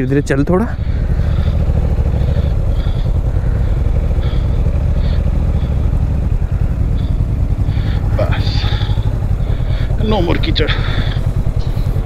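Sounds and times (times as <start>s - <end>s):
motorcycle engine at low revs: 0.0s - 12.0s.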